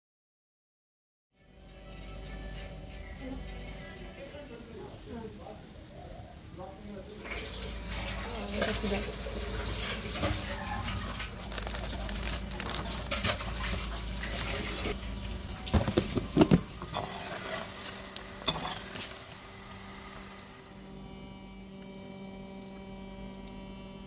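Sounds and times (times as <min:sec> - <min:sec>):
food deep-frying in oil: 0:07.0 - 0:21.0.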